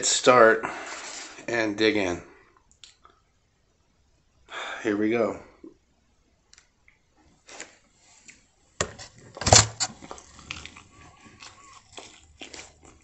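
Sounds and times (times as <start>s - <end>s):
biting and chewing crackles: 9.5s - 13.0s.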